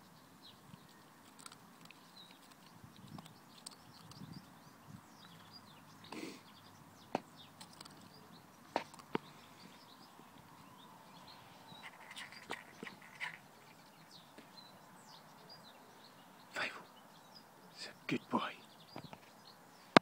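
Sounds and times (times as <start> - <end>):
birds chirping faintly: 0.0 - 20.0
dog claws clicking on concrete: 1.2 - 4.2, 7.6 - 8.1.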